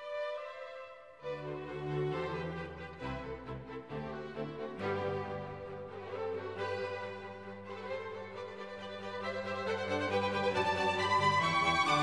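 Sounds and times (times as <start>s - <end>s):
orchestral music with held strings: 0.0s - 12.0s.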